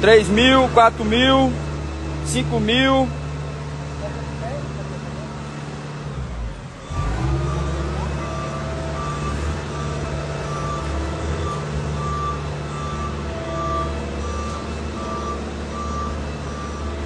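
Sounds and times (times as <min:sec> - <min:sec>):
vehicle engine running: 0:00.0 - 0:17.0
reversing alarm beeping: 0:00.3 - 0:01.6, 0:06.8 - 0:17.0.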